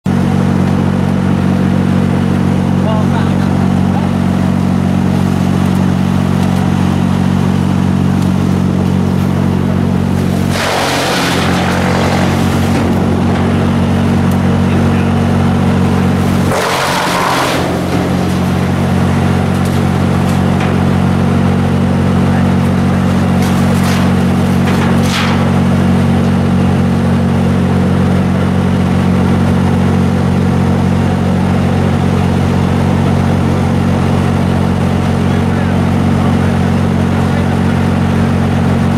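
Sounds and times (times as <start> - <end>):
wood chipper engine running: 0.0 - 38.9
branches being shredded: 5.0 - 26.5.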